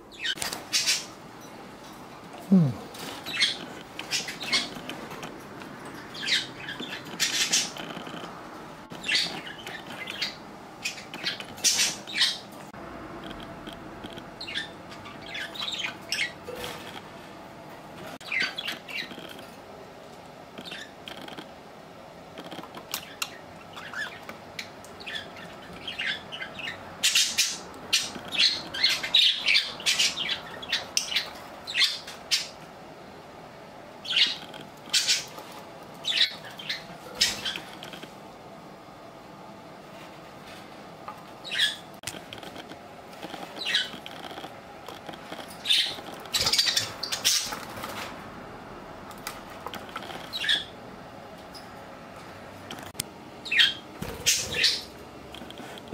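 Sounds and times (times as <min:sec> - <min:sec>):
budgerigars chirping and squawking: 0:00.1 - 0:01.2, 0:03.0 - 0:05.3, 0:06.0 - 0:08.3, 0:08.9 - 0:12.5, 0:13.2 - 0:17.0, 0:18.2 - 0:19.4, 0:20.6 - 0:21.4, 0:22.4 - 0:32.6, 0:34.0 - 0:38.1, 0:41.4 - 0:48.0, 0:49.8 - 0:50.8, 0:53.4 - 0:55.8.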